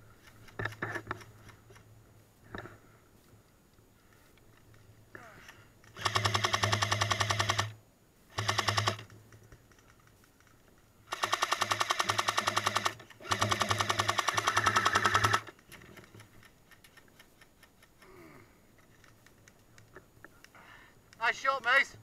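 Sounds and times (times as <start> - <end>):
motor hum: 5.2 - 9.1, 11.0 - 16.2
airsoft gun firing bursts: 5.9 - 9.1, 11.1 - 15.5.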